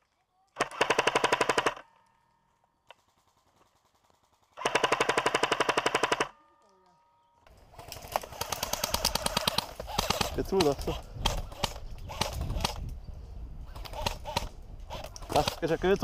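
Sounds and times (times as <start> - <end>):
airsoft rifle rapid fire: 0.6 - 1.8, 3.0 - 6.3, 7.8 - 12.8, 13.7 - 15.7.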